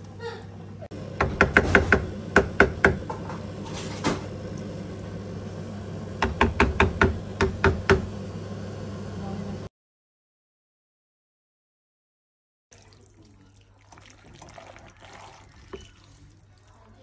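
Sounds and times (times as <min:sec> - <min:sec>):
wooden spoon knocking metal pot: 0:01.2 - 0:03.3, 0:06.2 - 0:08.1.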